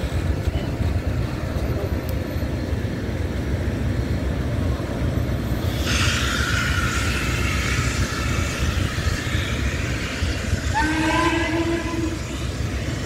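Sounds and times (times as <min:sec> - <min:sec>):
steady low rumble: 0:00.0 - 0:13.0
train horn chord: 0:10.7 - 0:12.3.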